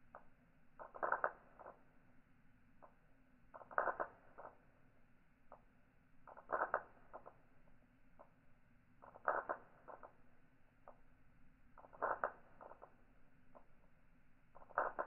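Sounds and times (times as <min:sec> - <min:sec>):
newton's cradle balls clacking: 0:06.3 - 0:07.4, 0:11.8 - 0:13.8, 0:14.6 - 0:15.0.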